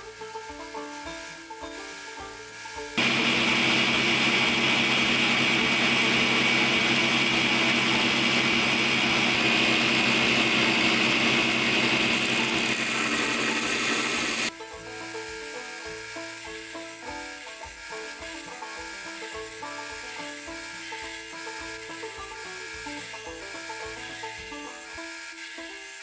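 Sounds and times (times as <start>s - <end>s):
belt grinder grinding blade: 0.0s - 26.0s
background music: 14.5s - 26.0s.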